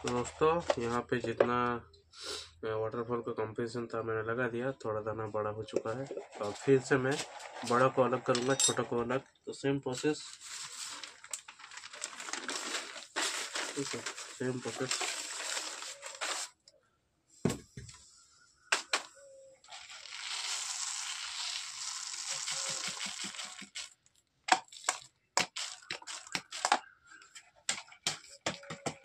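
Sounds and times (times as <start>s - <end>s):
pellets rustling hiss: 10.2s - 16.6s, 19.6s - 24.0s
sieve clicks and crackles: 19.6s - 26.9s.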